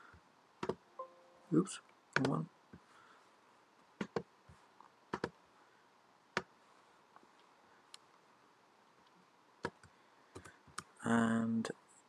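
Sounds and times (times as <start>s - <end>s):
computer mouse clicking: 0.6s - 0.8s, 2.2s - 2.4s, 4.0s - 4.3s, 5.1s - 5.4s, 9.6s - 10.9s.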